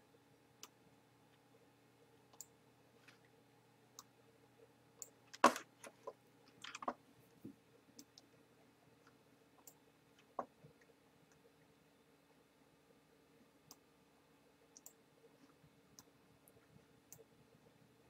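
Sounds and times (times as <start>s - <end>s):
faint steady hum: 0.0s - 18.0s
computer mouse clicking: 2.3s - 2.5s, 14.8s - 15.0s.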